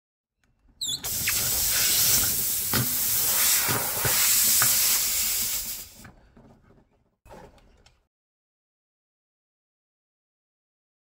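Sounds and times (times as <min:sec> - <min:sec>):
loud steady hiss: 0:01.0 - 0:06.0.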